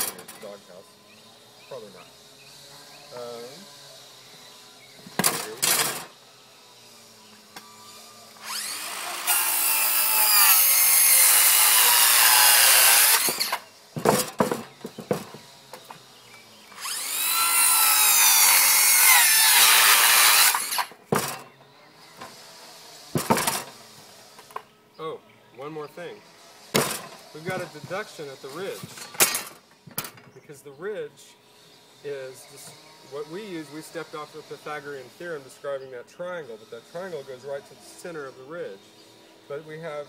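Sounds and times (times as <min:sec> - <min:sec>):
circular saw cutting wood: 0:00.0 - 0:29.8, 0:30.9 - 0:40.0
sharp knocks: 0:14.0 - 0:16.0, 0:23.2 - 0:23.7, 0:26.8 - 0:27.6.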